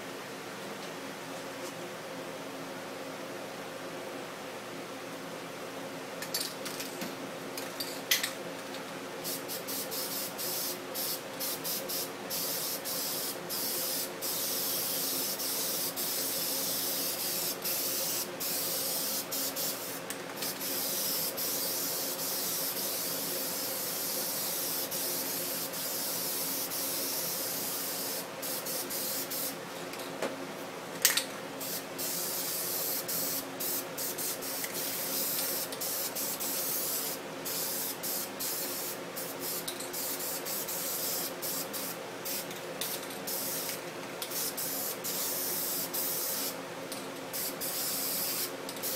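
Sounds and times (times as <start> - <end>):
spray paint can hissing: 9.2 - 29.6, 31.6 - 46.6, 47.4 - 48.9.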